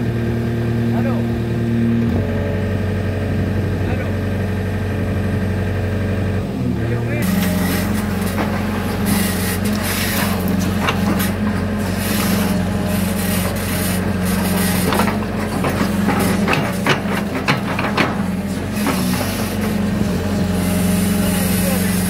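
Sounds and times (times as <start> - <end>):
excavator diesel engine running: 0.0 - 22.0
sharp clacks and scrapes: 7.3 - 12.6, 13.2 - 19.8.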